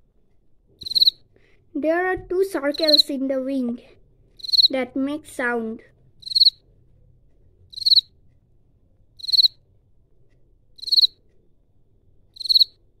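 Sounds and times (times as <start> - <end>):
cricket chirping: 0.8 - 1.2, 2.7 - 3.0, 4.4 - 4.7, 6.2 - 6.6, 7.7 - 8.1, 9.2 - 9.6, 10.8 - 11.2, 12.4 - 12.8.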